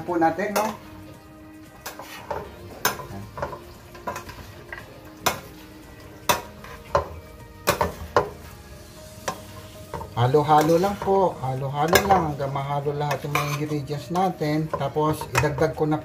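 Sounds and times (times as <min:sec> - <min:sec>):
metal spoons clinking on a pan: 0:00.2 - 0:00.9, 0:01.8 - 0:05.6, 0:06.2 - 0:08.4, 0:09.2 - 0:16.0.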